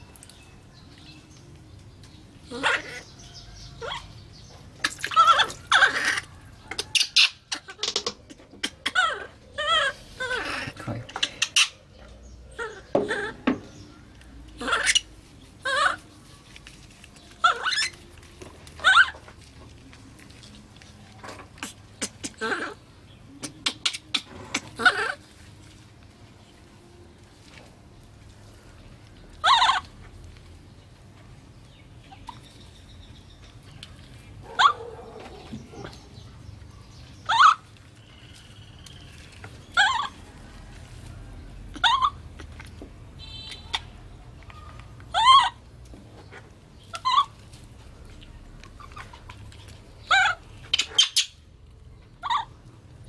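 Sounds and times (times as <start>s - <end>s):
baby monkey high-pitched calls: 2.4s - 4.2s, 4.8s - 11.8s, 12.5s - 13.4s, 14.6s - 16.1s, 17.4s - 18.0s, 18.8s - 19.2s, 21.6s - 25.3s, 29.4s - 29.9s, 37.2s - 38.5s, 39.1s - 40.3s, 41.7s - 42.6s, 43.2s - 45.7s, 46.9s - 47.4s, 50.1s - 51.4s, 52.2s - 52.6s.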